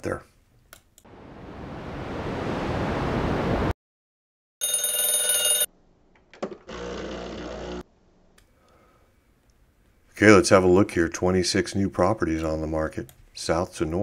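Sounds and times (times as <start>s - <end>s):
ringing tone: 4.6s - 5.7s.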